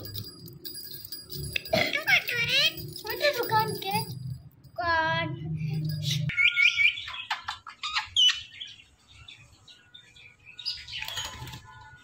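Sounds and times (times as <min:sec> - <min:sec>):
parakeet chirping and calling: 0:06.0 - 0:11.4.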